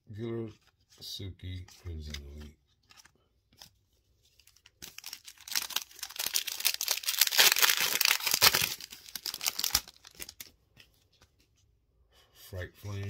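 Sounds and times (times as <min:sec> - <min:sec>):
wrapper tearing and crinkling: 0:04.4 - 0:10.5.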